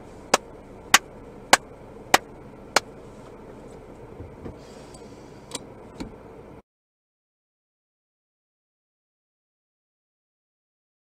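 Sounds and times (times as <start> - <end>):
car cabin hum: 0.0 - 6.6.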